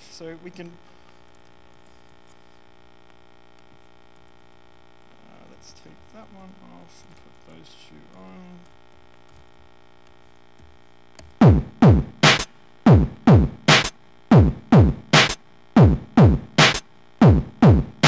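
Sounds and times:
electronic drum loop: 11.4 - 18.0.

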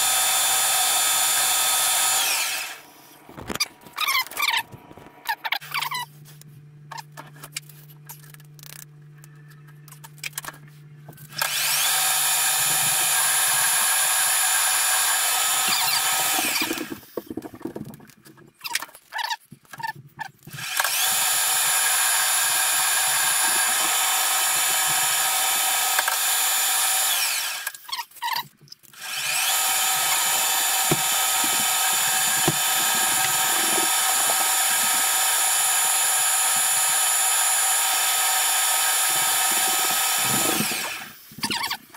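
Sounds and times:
metal lathe whining: 0.0 - 2.9, 11.3 - 17.0, 20.7 - 27.7, 29.0 - 41.7.

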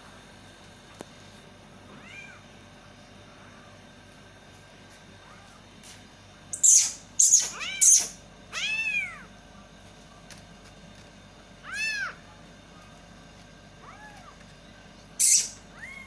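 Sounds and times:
kittens mewing: 6.6 - 9.3, 11.6 - 12.4, 13.7 - 14.5, 15.2 - 16.0.

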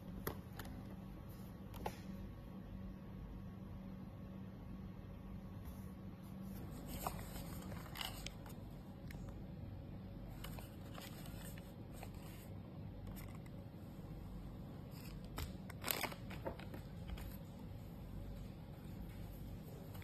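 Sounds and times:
plastic scrape: 6.6 - 8.6.

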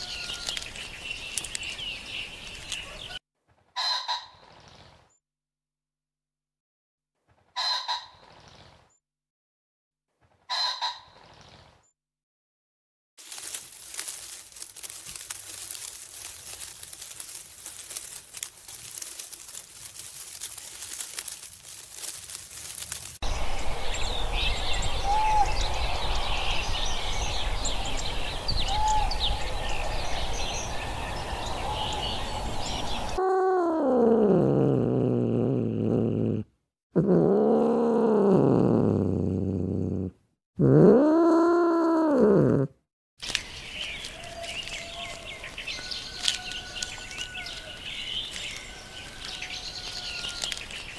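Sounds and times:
birds chirping: 0.0 - 3.2, 23.2 - 33.2, 43.2 - 50.9
low rumble: 23.2 - 33.1.

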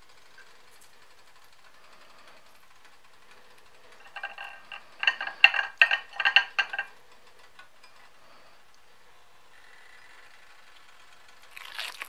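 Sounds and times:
crunching fried chicken: 11.4 - 12.0.

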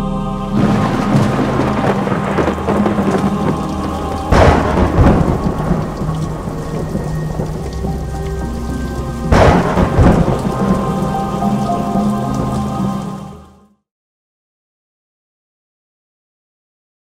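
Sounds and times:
thunder claps rumbling: 0.5 - 13.3
rain falling: 0.5 - 13.6.

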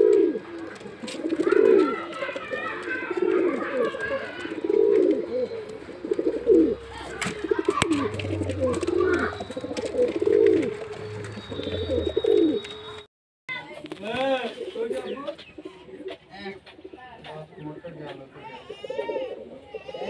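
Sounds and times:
pigeon cooing: 0.0 - 12.7, 18.5 - 20.0.

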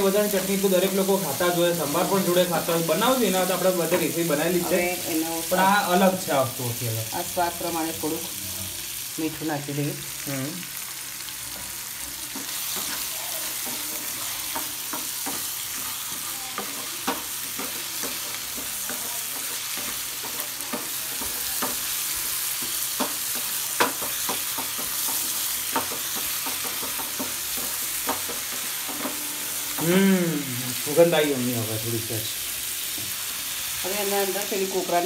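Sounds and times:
food sizzling in hot oil: 0.0 - 35.0
wooden spatula scraping a pan: 12.2 - 29.8.

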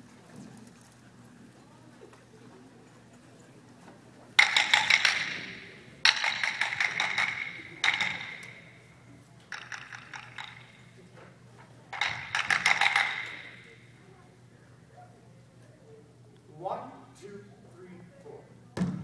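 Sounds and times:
rapid clicking percussion with ring: 4.4 - 8.9, 9.5 - 11.0, 11.9 - 13.9.

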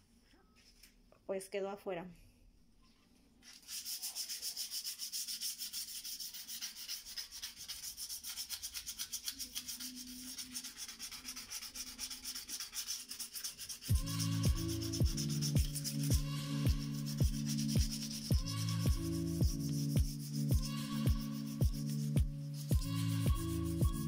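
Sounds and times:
sandpaper scraping tile: 3.4 - 24.0
music: 13.8 - 24.0.

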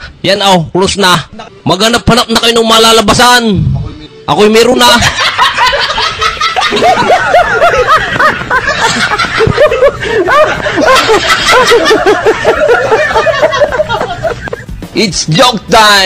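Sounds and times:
laugh track of people laughing: 4.8 - 15.0.

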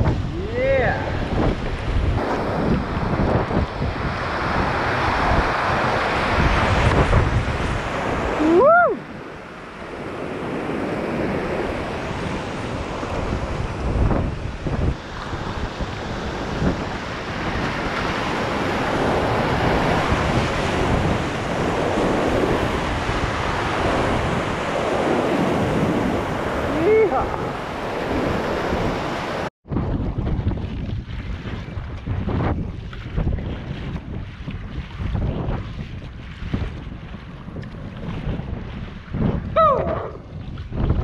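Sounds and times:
rushing river water: 0.0 - 29.5
wind buffeting microphone: 0.0 - 41.0.

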